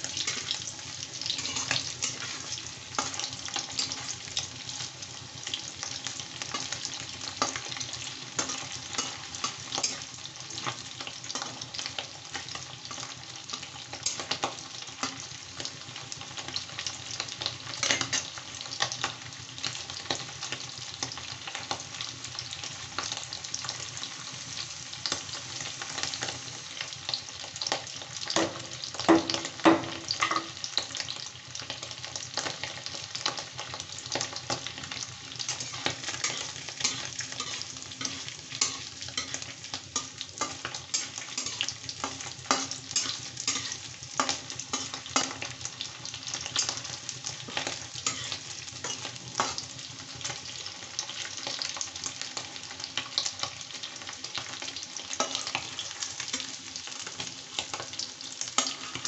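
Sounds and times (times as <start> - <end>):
oil sizzling and crackling: 0.0 - 59.0
metal spatula scraping pan: 1.2 - 3.2, 35.4 - 45.4, 47.5 - 49.6.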